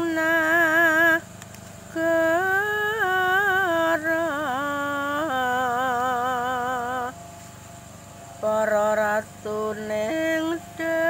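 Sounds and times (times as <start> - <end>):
person singing a chant: 0.0 - 1.3, 1.9 - 7.2, 8.4 - 11.0.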